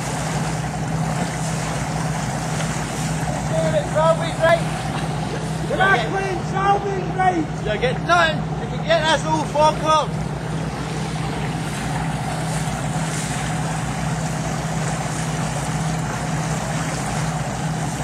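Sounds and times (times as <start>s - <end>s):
boat engine humming: 0.0s - 18.0s
water washing: 0.0s - 18.0s.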